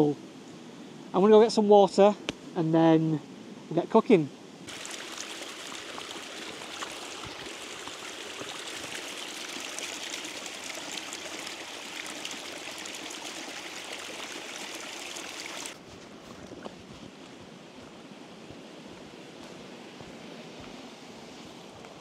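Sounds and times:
outdoor hiss: 0.0 - 15.8
small waterfall splashing over stones: 4.7 - 15.8.

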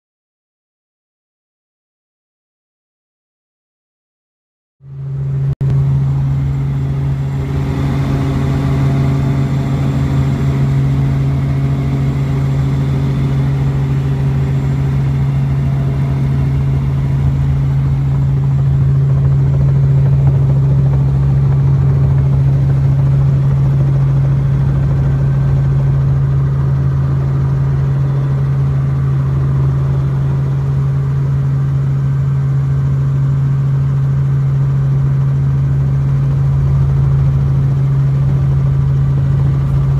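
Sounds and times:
helicopter engine and rotor drone: 4.8 - 39.9.

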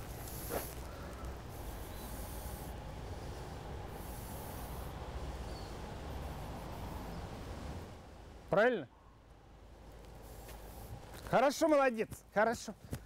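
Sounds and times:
low outdoor rumble: 0.0 - 12.0
dog sniffing rapidly: 1.5 - 5.6.

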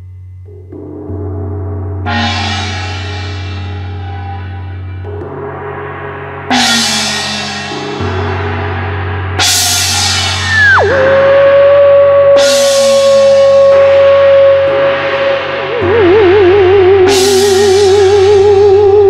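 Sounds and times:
gongs struck with a mallet: 0.0 - 19.0.

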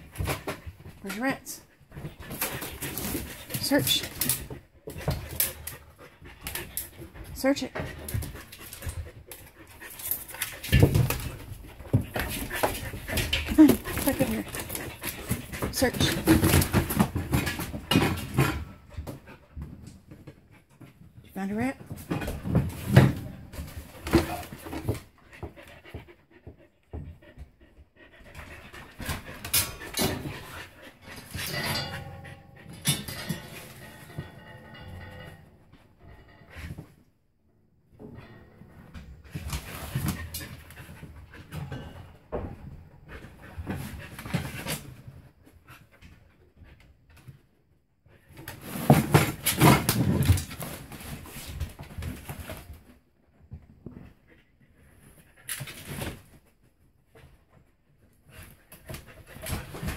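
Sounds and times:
knocks and rustles: 0.0 - 37.1, 37.8 - 59.9
dog panting and sniffing: 1.7 - 19.6, 24.2 - 34.4.

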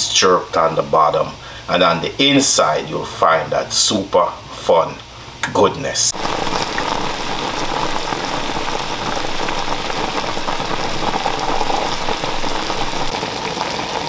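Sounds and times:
juices bubbling and sizzling in pot: 6.1 - 14.0.

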